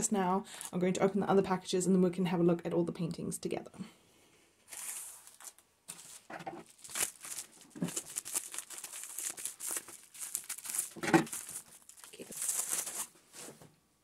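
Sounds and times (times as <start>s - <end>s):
plastic packaging crinkling: 4.7s - 13.5s.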